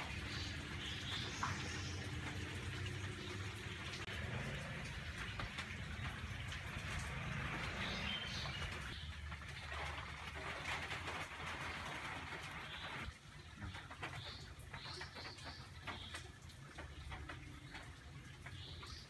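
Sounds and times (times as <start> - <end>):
birds calling: 0.0 - 9.3.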